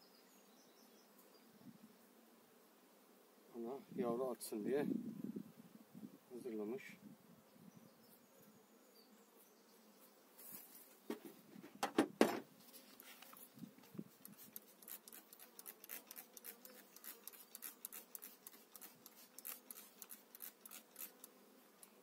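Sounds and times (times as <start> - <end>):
bees humming: 13.3 - 22.0
spray bottle squirting: 14.1 - 22.0.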